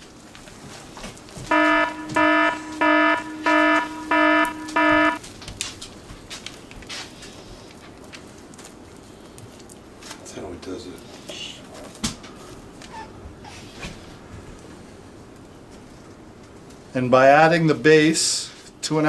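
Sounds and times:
kitchen timer beeps: 1.5s - 5.2s.

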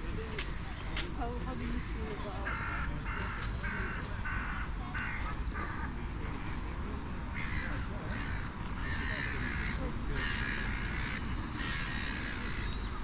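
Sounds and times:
crow cawing: 1.7s - 5.8s, 7.4s - 12.7s.

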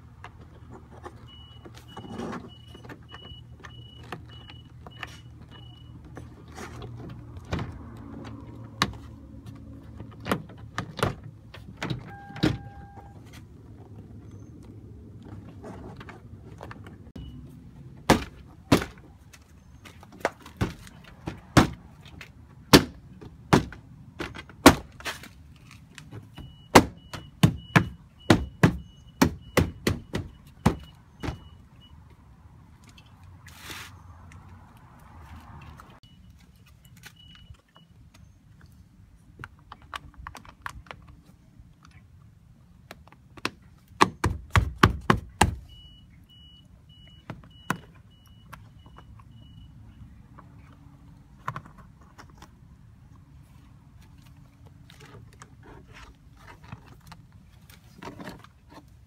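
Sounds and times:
faint high beep: 1.3s - 6.0s, 12.1s - 13.2s.

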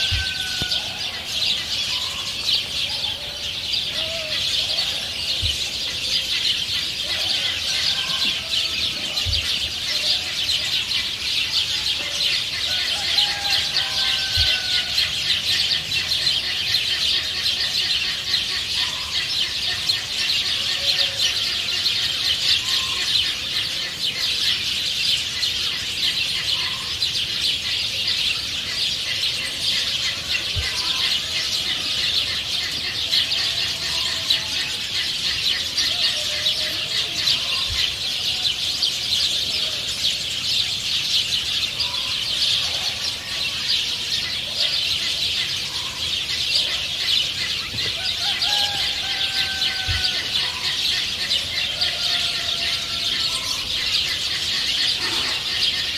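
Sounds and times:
small birds chirping: 0.0s - 55.9s
hens clucking: 28.4s - 38.5s, 42.6s - 55.9s.

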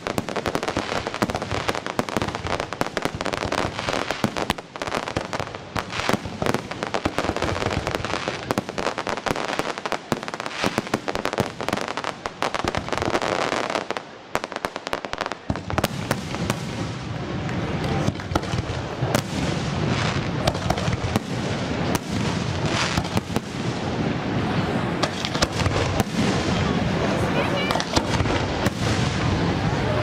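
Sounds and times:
deep firework bursts: 0.0s - 30.0s
fireworks crackling: 0.0s - 30.0s.

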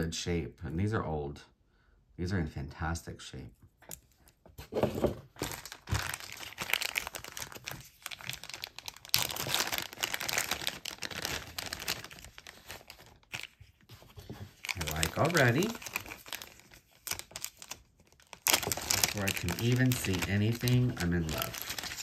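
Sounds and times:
packing wrapping crinkling: 5.3s - 22.0s.

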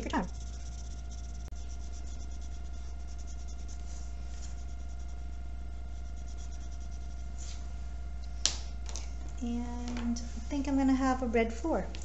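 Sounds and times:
crayon scribbling on paper: 0.0s - 7.4s
low electrical hum: 0.0s - 12.0s.

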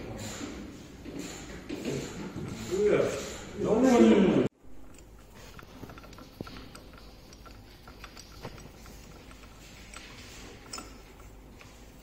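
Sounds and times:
light metallic clicks and taps: 4.8s - 12.0s.

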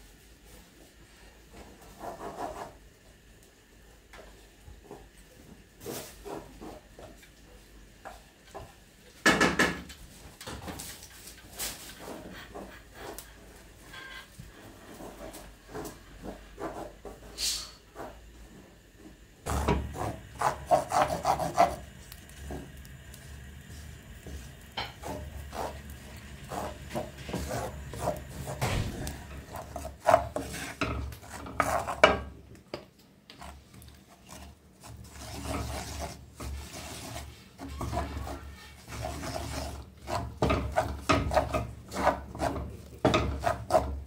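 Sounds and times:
rubbing and scraping strokes: 19.5s - 22.0s, 24.2s - 32.0s, 33.4s - 44.0s.

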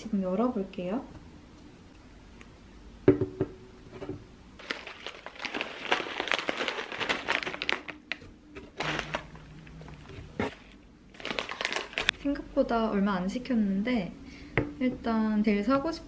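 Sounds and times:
plastic pouches crinkling: 4.6s - 12.2s.

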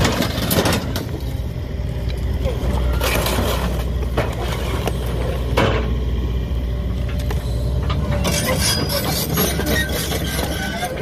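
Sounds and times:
crackling and clinking debris: 0.0s - 1.3s
excavator diesel engine running: 0.0s - 11.0s.

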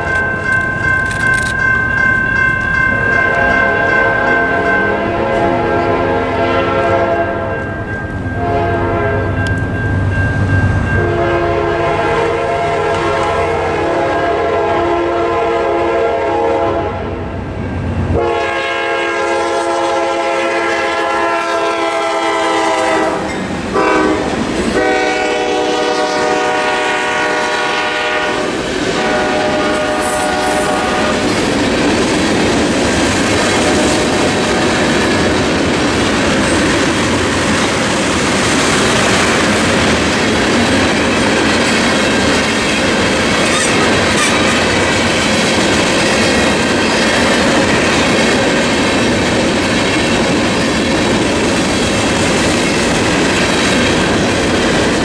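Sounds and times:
locomotive horn blasts: 3.2s - 7.6s, 8.4s - 9.5s, 11.0s - 17.2s, 18.1s - 31.4s
freight cars rolling clatter: 30.6s - 55.0s.

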